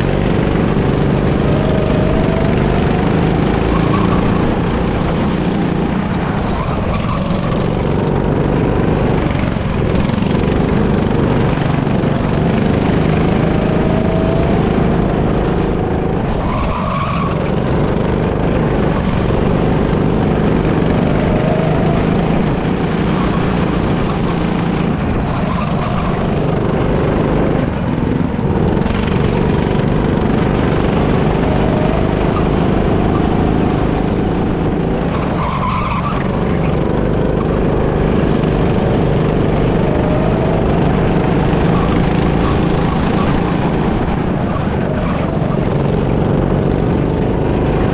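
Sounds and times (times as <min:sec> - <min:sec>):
go-kart engine running hard: 0:00.0 - 0:47.9
tyre squeals: 0:00.8 - 0:07.8.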